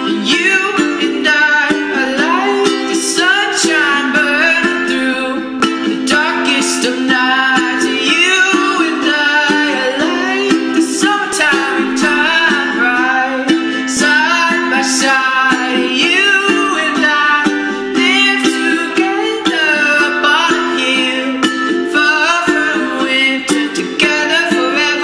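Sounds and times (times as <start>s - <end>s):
person singing: 0.0s - 25.0s
plucked string accompaniment: 0.0s - 25.0s.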